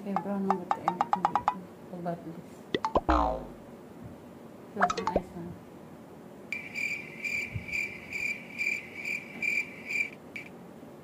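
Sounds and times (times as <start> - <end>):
cricket chirping: 6.6 - 10.5.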